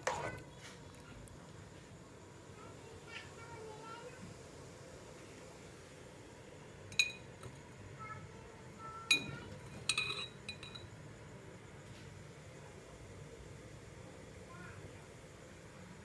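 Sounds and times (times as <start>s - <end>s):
metal spoon clinking on glass jars: 6.9s - 7.3s, 9.1s - 10.9s.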